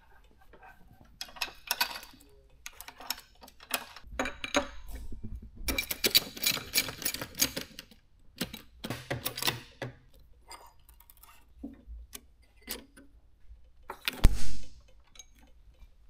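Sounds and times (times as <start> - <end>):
metallic clicking and clinking: 1.2 - 10.0, 14.8 - 15.9.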